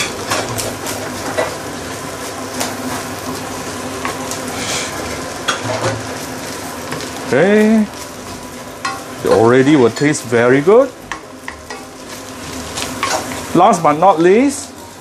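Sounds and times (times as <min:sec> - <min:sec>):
rice sizzling in a pan: 0:00.0 - 0:15.0
spatula scraping and knocking pan: 0:12.8 - 0:13.5.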